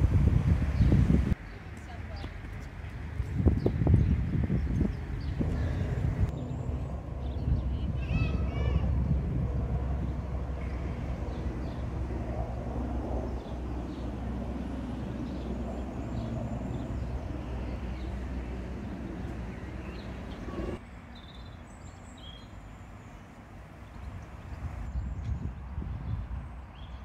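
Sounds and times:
low rumble: 3.5 - 20.8.

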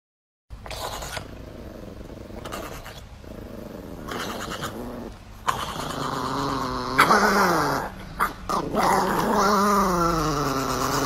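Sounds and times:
dog rasping breaths: 0.6 - 6.1
small dog growling: 0.6 - 11.0.

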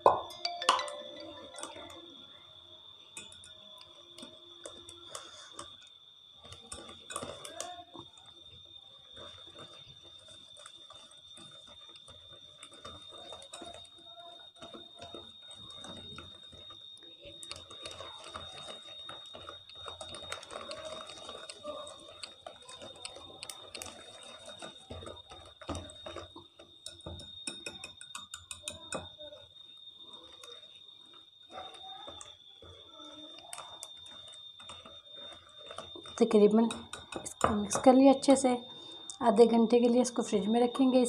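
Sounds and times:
faint high-pitched whine: 0.0 - 8.3
whisk clicking against glass bowl: 26.8 - 29.1, 33.5 - 37.9.

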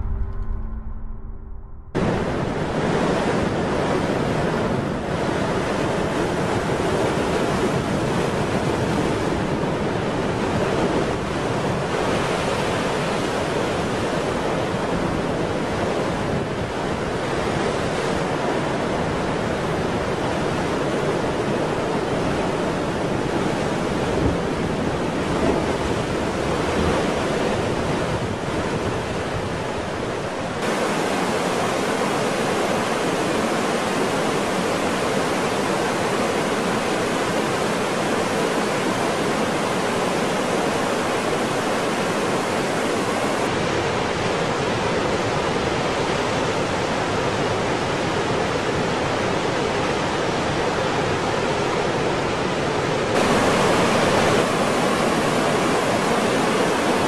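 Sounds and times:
waterfall rushing: 30.6 - 43.5, 53.2 - 57.0.

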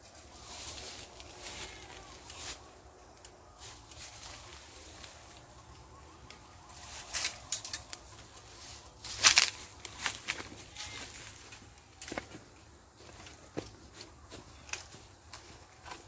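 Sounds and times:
bamboo rustling and scraping: 0.0 - 16.0.

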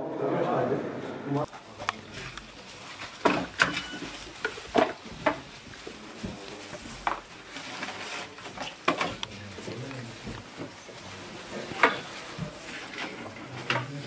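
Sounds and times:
rustling: 1.4 - 14.0
light knocks and clatter: 1.8 - 11.0.

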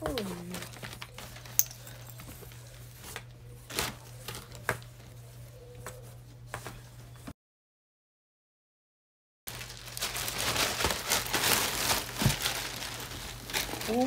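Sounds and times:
fabric rustling: 9.5 - 14.0.

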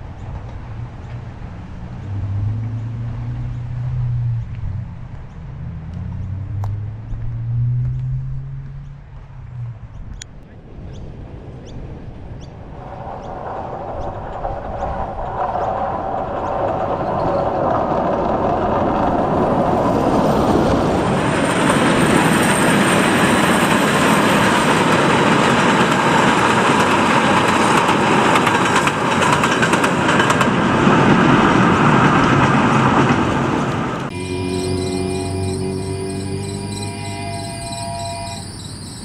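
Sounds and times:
steam train running past: 13.8 - 39.0.

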